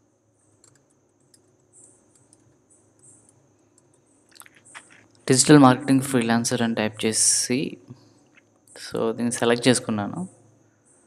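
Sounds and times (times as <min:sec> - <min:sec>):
low steady hum: 0:00.0 - 0:11.0
soft keyboard keystrokes: 0:00.6 - 0:05.2.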